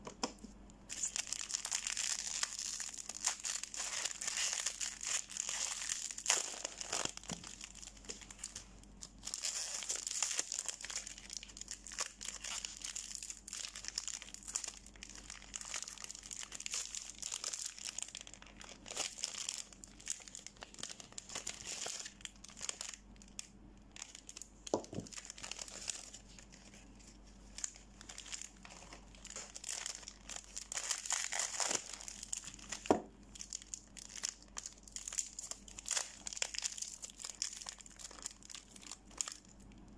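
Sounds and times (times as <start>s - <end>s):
plastic wrapper crinkling and tearing: 0.9s - 39.9s.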